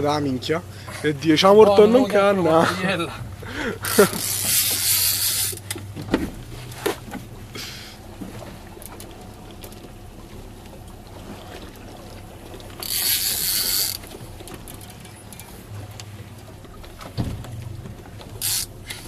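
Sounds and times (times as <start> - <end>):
water washing against boat: 0.0 - 19.0
fishing reel drag buzzing: 3.8 - 5.7, 12.8 - 14.1, 18.4 - 19.0.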